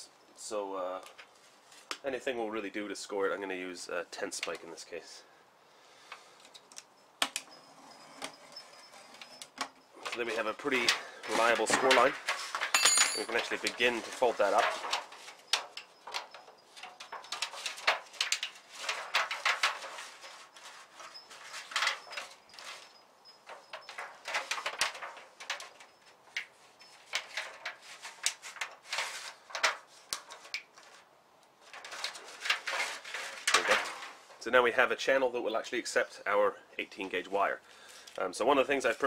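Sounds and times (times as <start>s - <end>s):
aluminium foil crinkling: 13.3s - 34.4s.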